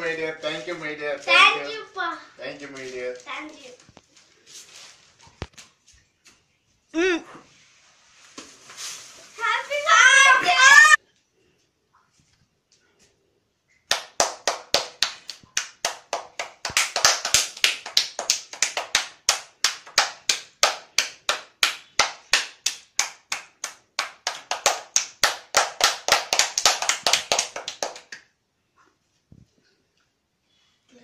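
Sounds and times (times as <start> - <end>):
hands clapping in rhythm: 13.9 - 28.3.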